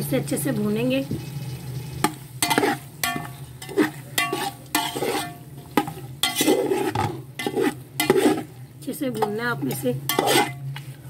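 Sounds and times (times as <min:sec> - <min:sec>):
chicken sizzling in oil: 0:00.0 - 0:10.7
metal spoon scraping a pot: 0:02.0 - 0:10.7.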